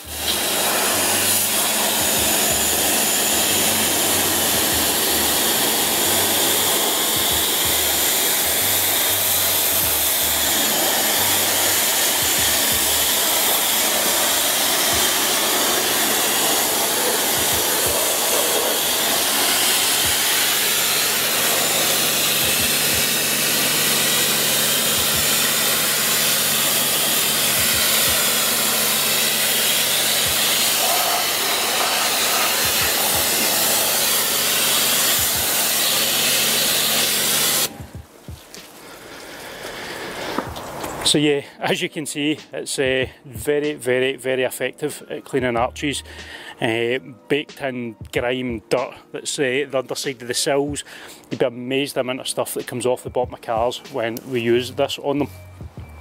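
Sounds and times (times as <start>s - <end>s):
pressure washer humming: 0.0s - 41.2s, 53.2s - 56.0s
steam jet hissing: 0.0s - 43.0s, 48.8s - 55.5s.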